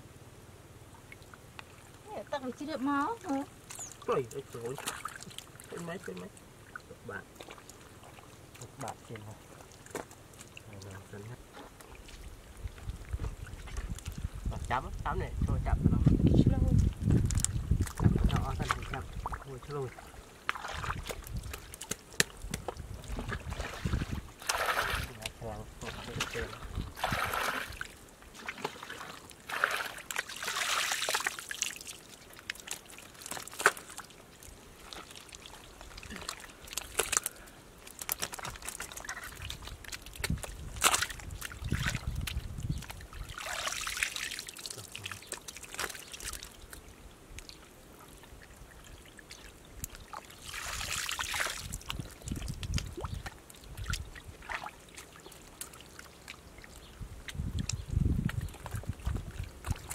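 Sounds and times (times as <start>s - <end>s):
splashes: 0.9s - 14.8s, 16.7s - 57.6s, 58.2s - 59.9s
muddy water pouring from basket: 3.7s - 11.2s, 16.8s - 46.8s, 50.1s - 56.4s.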